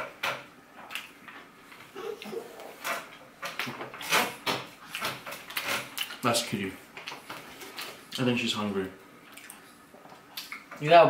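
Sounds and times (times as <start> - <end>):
eating clicks and crackles: 4.8 - 6.3, 9.2 - 10.8.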